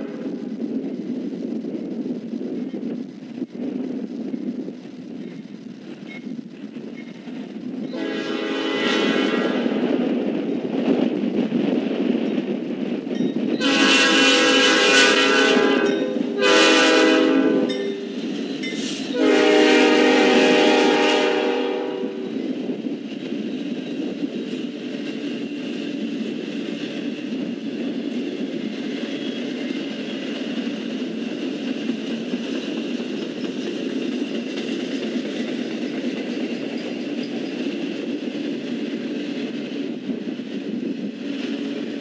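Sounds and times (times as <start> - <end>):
train rumbling and clattering past: 0.0 - 42.0
locomotive horn blowing: 8.0 - 9.7, 13.6 - 18.0, 19.1 - 22.3.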